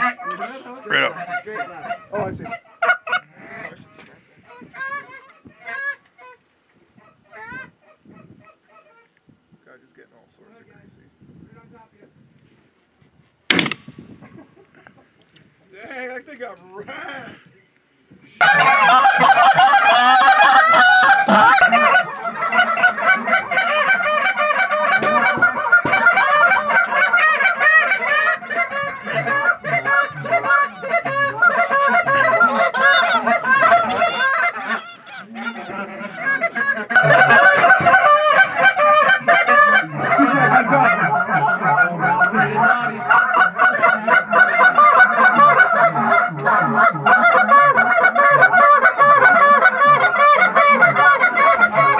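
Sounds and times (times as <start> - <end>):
geese honking: 0.0 - 3.8, 18.4 - 51.9.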